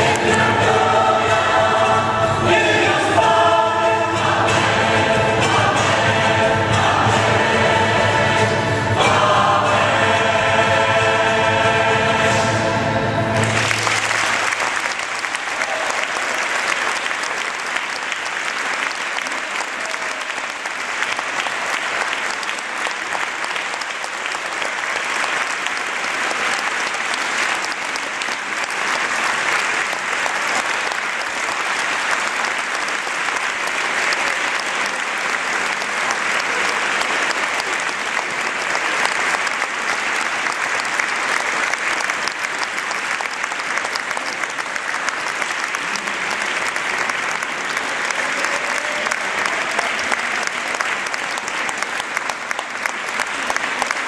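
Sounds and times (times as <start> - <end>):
audience applauding: 0.0 - 1.9, 13.3 - 54.0.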